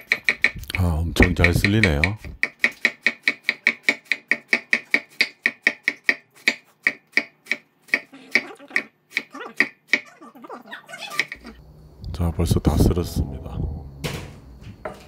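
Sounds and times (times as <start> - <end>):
knife chopping cabbage on board: 0.0 - 10.1.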